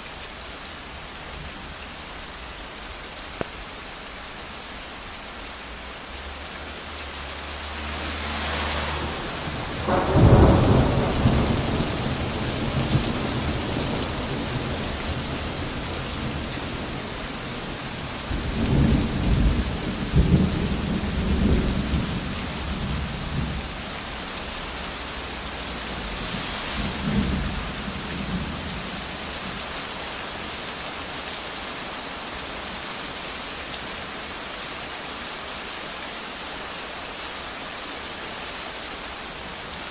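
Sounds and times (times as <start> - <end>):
steady rain falling: 0.0 - 39.9
thunder rumbling: 8.8 - 23.8, 24.4 - 29.4.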